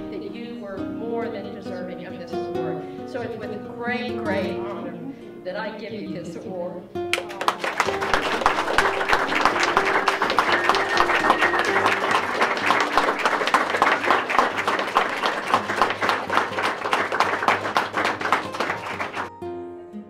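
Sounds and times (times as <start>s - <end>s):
quiet acoustic guitar music: 0.0s - 20.0s
audience applauding: 7.1s - 19.3s.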